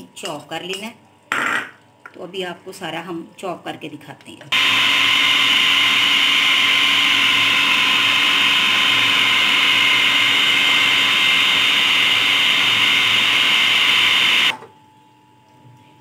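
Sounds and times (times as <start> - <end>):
food processor chopping: 4.5 - 14.6.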